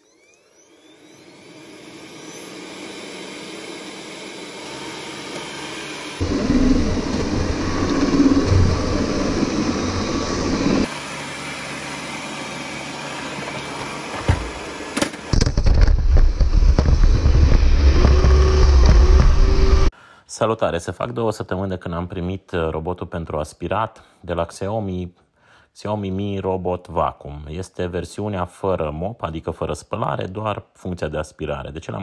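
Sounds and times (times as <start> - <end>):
robot vacuum fan whirring: 0.0 - 19.9
heavy low rumble: 6.2 - 10.9, 15.4 - 19.9.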